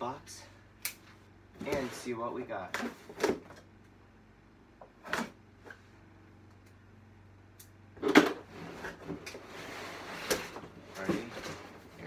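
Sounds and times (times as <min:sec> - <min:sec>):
cardboard scraping and rustling: 0:01.6 - 0:02.2, 0:08.4 - 0:12.0.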